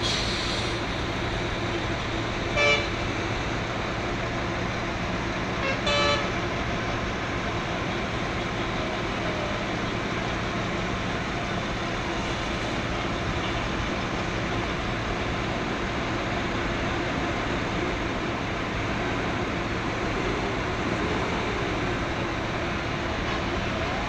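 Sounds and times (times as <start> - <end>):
road traffic: 0.0 - 24.0
vehicle horn toots: 2.6 - 3.0, 5.6 - 6.4.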